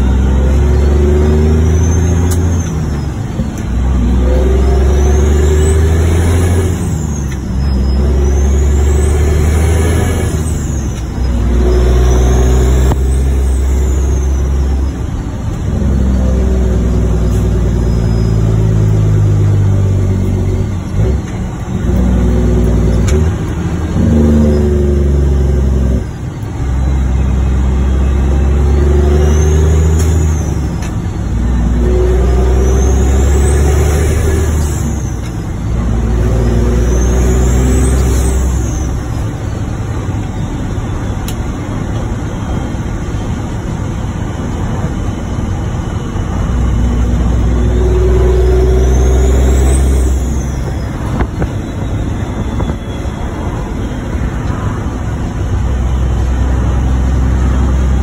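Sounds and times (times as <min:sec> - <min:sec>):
diesel truck engine under load: 0:00.0 - 0:58.0
high turbo whistle: 0:04.0 - 0:15.2, 0:24.0 - 0:41.5, 0:45.0 - 0:56.4.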